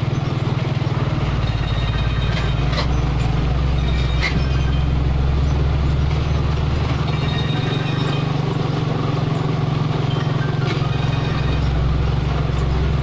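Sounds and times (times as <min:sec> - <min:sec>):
diesel truck engine rumbling: 0:00.0 - 0:13.0.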